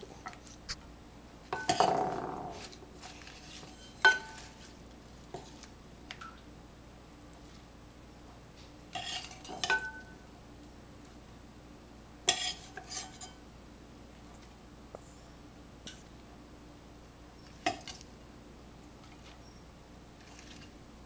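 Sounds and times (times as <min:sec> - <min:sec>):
utensil scraping: 0:01.6 - 0:05.7.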